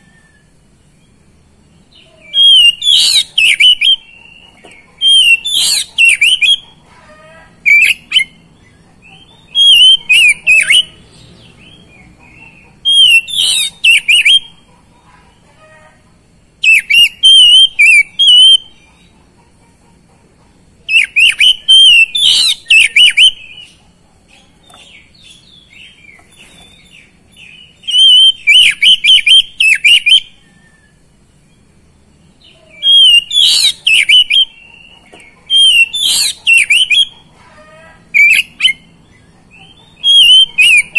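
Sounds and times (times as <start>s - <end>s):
bird whistled song: 2.0s - 6.8s, 7.6s - 14.6s, 16.6s - 18.9s, 20.9s - 23.8s, 24.7s - 31.7s, 32.4s - 37.3s, 38.2s - 40.9s.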